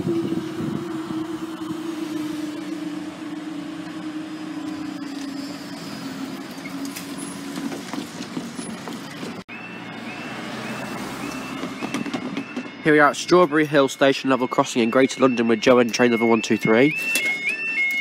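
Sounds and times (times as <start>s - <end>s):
vehicle engine hum: 0.0s - 12.9s
level crossing warbling alarm: 0.1s - 7.8s, 8.5s - 18.0s.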